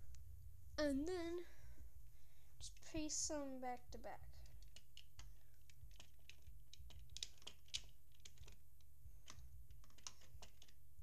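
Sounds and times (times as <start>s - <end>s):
low steady hum: 0.0s - 11.0s
plastic bricks clicking: 4.4s - 8.6s, 9.2s - 10.8s.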